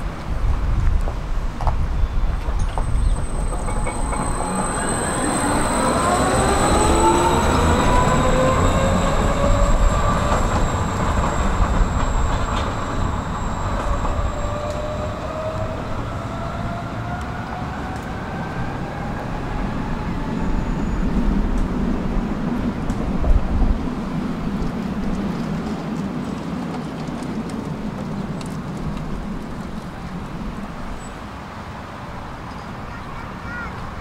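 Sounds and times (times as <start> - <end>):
tram rumbling on rails: 0.0 - 34.0
rising whine: 2.0 - 30.7.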